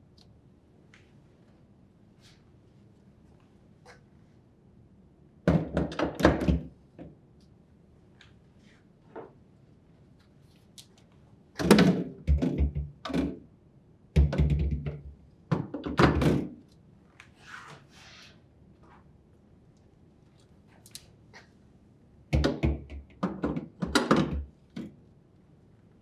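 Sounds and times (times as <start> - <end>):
glass shelves knocking and clattering: 11.6 - 13.4, 22.4 - 24.5.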